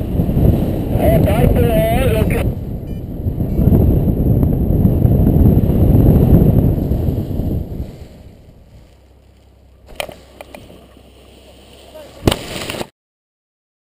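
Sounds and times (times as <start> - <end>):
wind rushing over microphone: 0.0 - 10.8.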